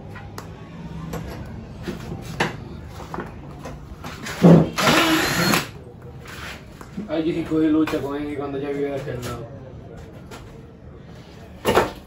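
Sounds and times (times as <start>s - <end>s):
cordless drill running: 4.8s - 5.7s.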